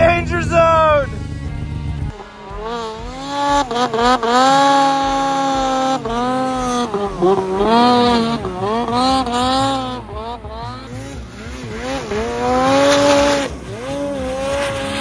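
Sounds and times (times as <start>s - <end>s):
snowmobile engine revving: 0.0s - 15.0s.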